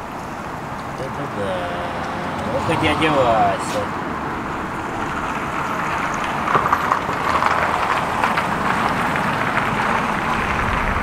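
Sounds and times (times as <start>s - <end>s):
road traffic noise: 0.0s - 11.0s.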